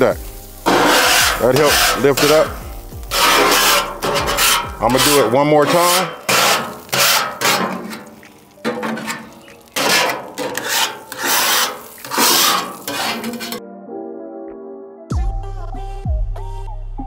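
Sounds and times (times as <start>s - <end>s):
metal scraper rasping on griddle: 0.6s - 13.6s.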